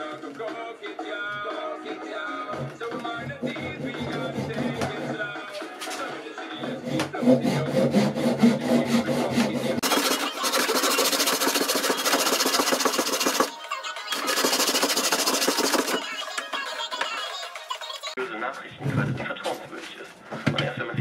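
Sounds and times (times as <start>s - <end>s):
background music with a beat: 0.0s - 18.2s
hand saw rasping through wood: 2.5s - 5.2s, 6.6s - 13.5s, 14.2s - 16.0s.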